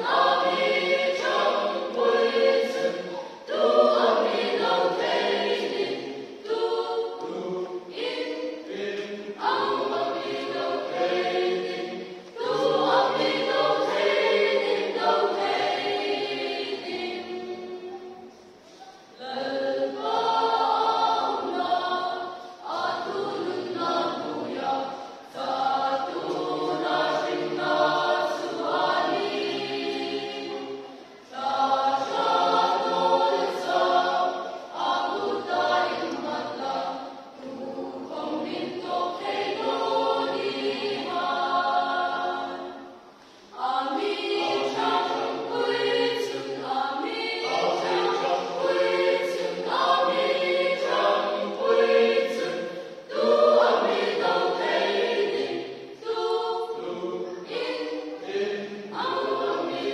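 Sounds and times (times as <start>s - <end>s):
choir singing a hymn: 0.0s - 59.9s.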